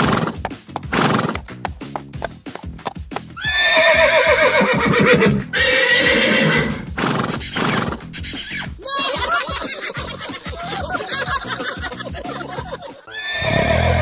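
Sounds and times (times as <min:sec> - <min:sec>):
hooves clip-clopping: 0:00.0 - 0:13.0
background music: 0:00.0 - 0:14.0
horse whinnying: 0:03.4 - 0:08.2, 0:13.1 - 0:14.0.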